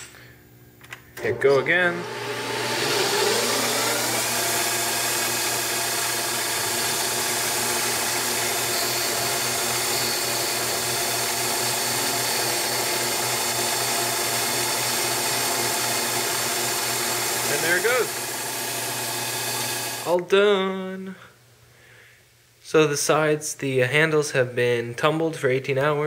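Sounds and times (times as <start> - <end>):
lathe spindle motor whining: 1.2 - 20.2.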